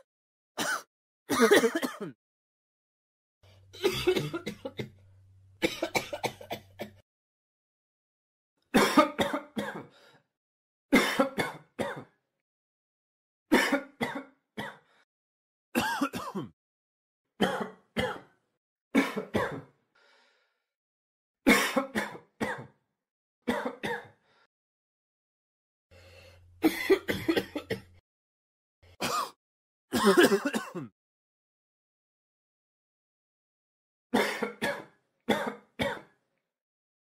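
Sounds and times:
person coughing: 0.6 - 2.2, 3.8 - 4.9, 5.6 - 7.0, 8.8 - 9.9, 11.0 - 12.2, 13.5 - 14.8, 15.8 - 16.6, 17.4 - 18.3, 19.0 - 19.7, 21.5 - 22.7, 23.5 - 24.2, 26.6 - 27.9, 29.0 - 30.9, 34.2 - 36.1.

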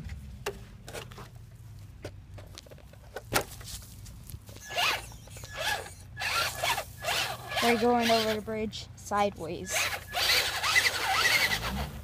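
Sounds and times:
wheels spinning in sand: 4.6 - 8.4, 9.7 - 12.0
toy truck electric motor revving: 4.6 - 8.5, 9.6 - 12.0.

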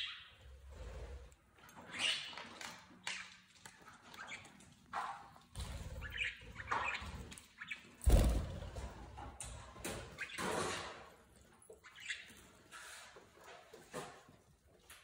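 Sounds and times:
budgerigars chirping and chattering: 0.0 - 0.4, 1.8 - 3.4, 5.6 - 8.3, 10.0 - 10.9, 11.7 - 13.0.

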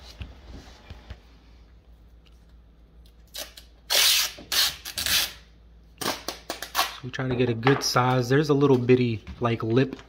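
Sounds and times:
masking tape ripping off roll: 3.2 - 5.4.

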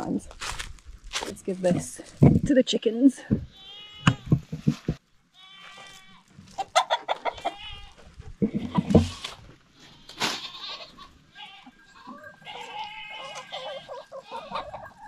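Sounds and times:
rustle of leafy vines: 0.0 - 2.2, 5.3 - 14.3
hens clucking: 3.3 - 15.0.

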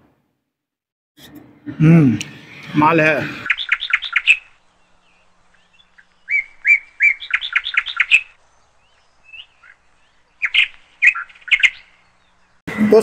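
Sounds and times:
bird chirping: 3.2 - 13.0.

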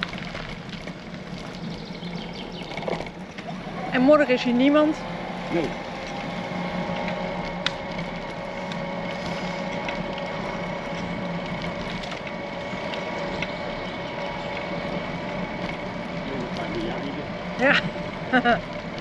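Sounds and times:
bicycle tyres on road: 0.0 - 19.0.

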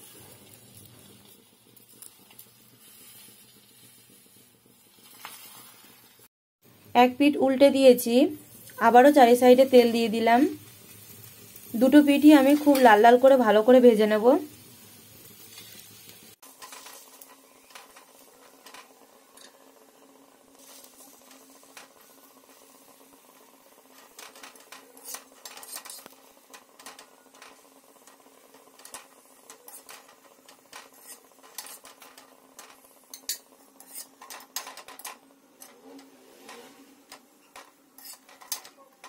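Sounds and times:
metal spatula scraping iron pan: 16.5 - 19.6, 23.8 - 39.0.

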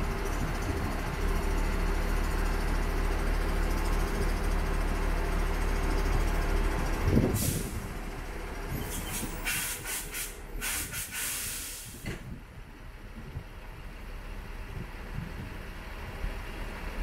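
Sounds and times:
truck engine running: 0.0 - 17.0
compressed air hissing: 8.9 - 12.1.

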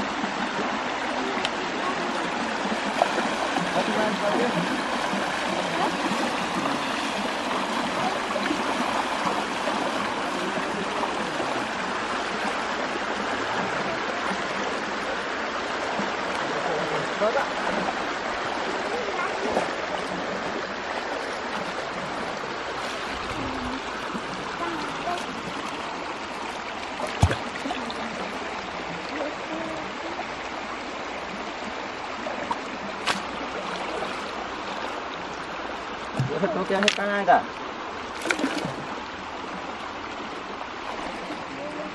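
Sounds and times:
stream water rushing: 0.0 - 41.9
splashing from wading legs: 26.8 - 28.1, 32.5 - 34.9, 38.1 - 38.9.

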